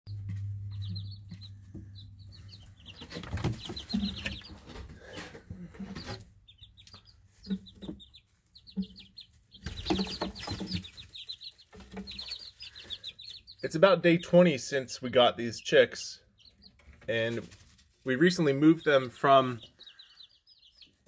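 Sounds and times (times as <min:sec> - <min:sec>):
chicks peeping: 0:00.1 - 0:21.0
rustling: 0:09.2 - 0:13.5, 0:16.8 - 0:18.1.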